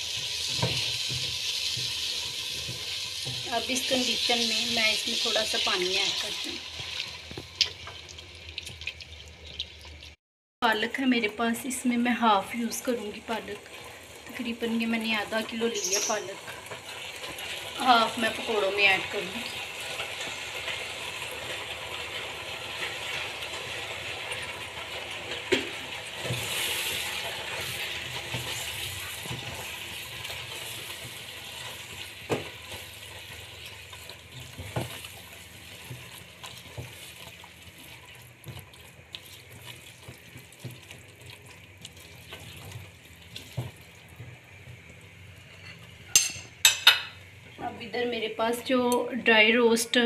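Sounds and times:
spatula stirring in pot: 19.4s - 46.8s
hiss from pot: 25.8s - 32.1s.

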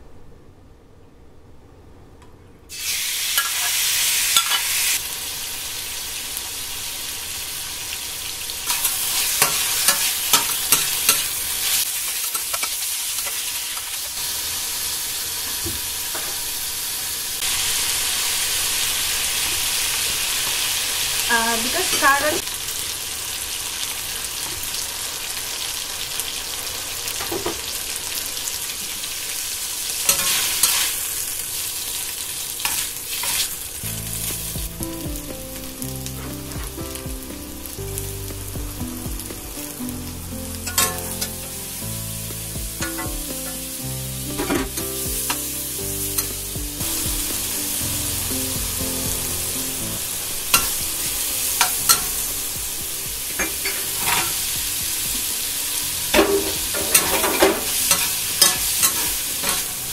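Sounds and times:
food sizzling in a wok: 2.7s - 59.9s
soft background music: 21.3s - 22.4s, 33.8s - 59.9s
metal spatula scraping pan: 40.7s - 41.4s, 53.4s - 54.4s, 56.2s - 59.8s.

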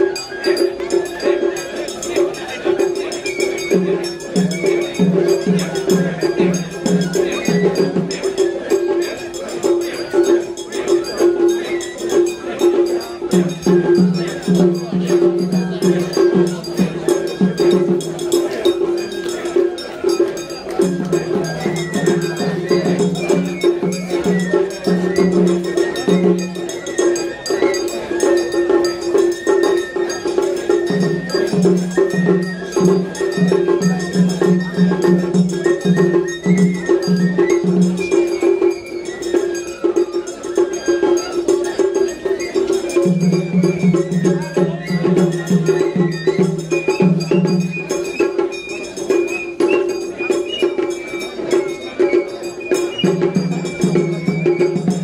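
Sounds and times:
bamboo flute melody: 0.0s - 55.0s
quick low drum beats: 0.1s - 40.8s.

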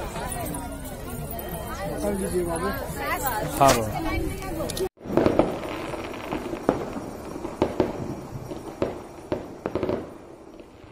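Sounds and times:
firecrackers popping: 3.5s - 10.9s.

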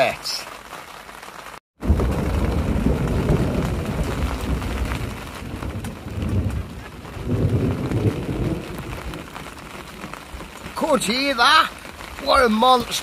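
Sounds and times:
rain falling: 0.0s - 13.0s
rolling thunder: 1.8s - 10.7s.

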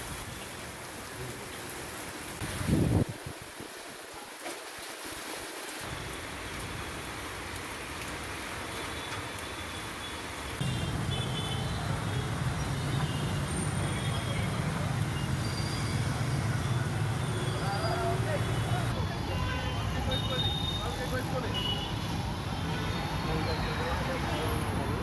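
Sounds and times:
vehicles driving through water: 4.7s - 25.0s
low traffic rumble: 10.3s - 25.0s.

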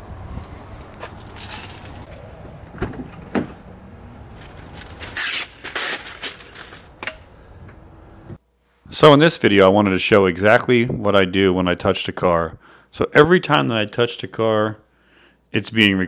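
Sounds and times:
rustling or rubbing: 0.2s - 2.1s, 4.1s - 7.0s.

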